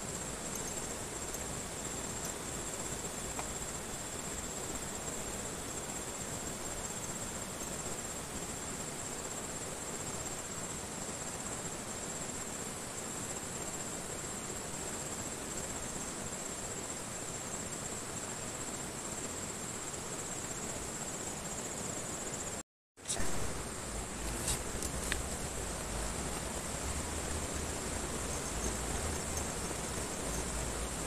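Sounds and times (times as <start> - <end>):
insects trilling: 0.0 - 31.0
river flowing: 23.1 - 31.0.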